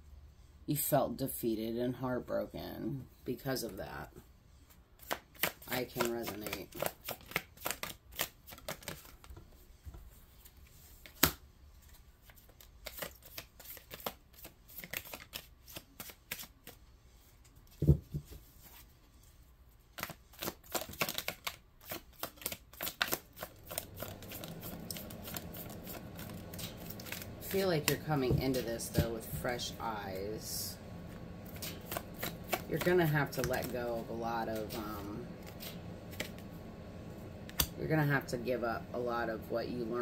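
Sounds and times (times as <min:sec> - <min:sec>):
cards being shuffled: 0:05.0 - 0:09.5, 0:10.4 - 0:16.8, 0:19.9 - 0:30.3, 0:31.0 - 0:36.5, 0:37.4 - 0:37.7.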